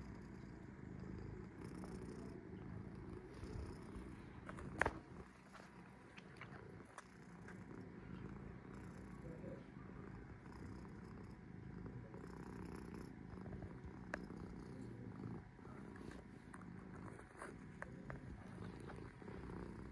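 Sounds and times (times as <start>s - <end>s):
cat purring: 0.0s - 19.9s.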